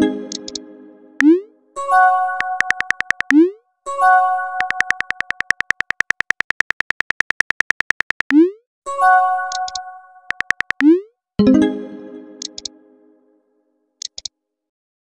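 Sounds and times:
keyboard tapping clicks: 0:00.3 - 0:00.6, 0:02.4 - 0:03.5, 0:04.6 - 0:08.5, 0:09.5 - 0:11.0, 0:12.4 - 0:12.7, 0:14.0 - 0:14.3.

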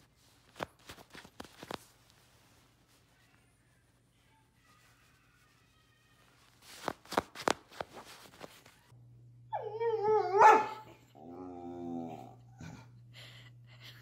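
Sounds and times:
dog whining and howling: 0:09.5 - 0:12.4
dog moaning: 0:09.5 - 0:13.0.

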